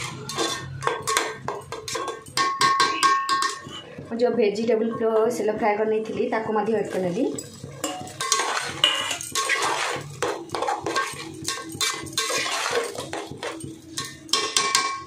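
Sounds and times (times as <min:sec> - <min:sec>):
metal spoon scraping pot: 0:00.0 - 0:04.0, 0:06.8 - 0:15.0
vegetables frying: 0:07.7 - 0:14.0.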